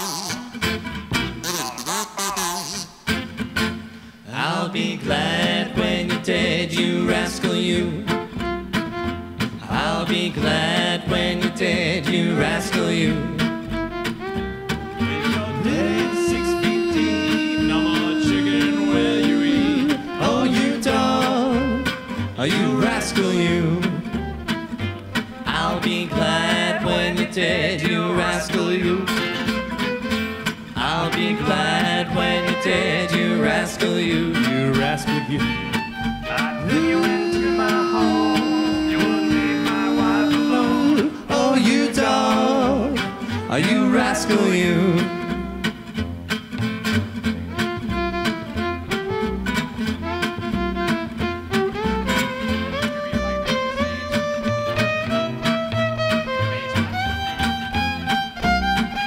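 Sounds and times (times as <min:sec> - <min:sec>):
acoustic guitars strumming: 0:00.0 - 0:59.0
plucked double bass: 0:00.2 - 0:04.0, 0:04.8 - 0:59.0
bowed violin: 0:11.9 - 0:41.7, 0:42.6 - 0:46.0, 0:47.3 - 0:59.0.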